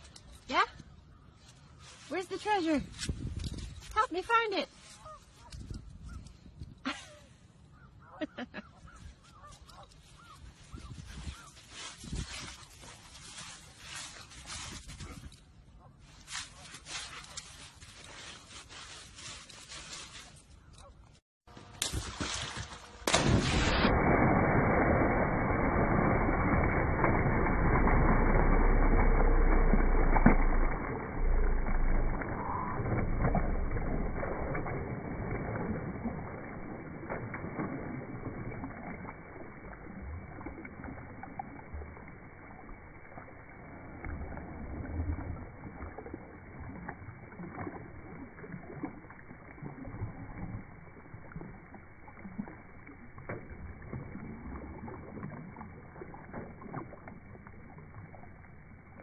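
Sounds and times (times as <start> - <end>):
dog paddling and splashing water: 8.8 - 21.2, 21.8 - 59.0.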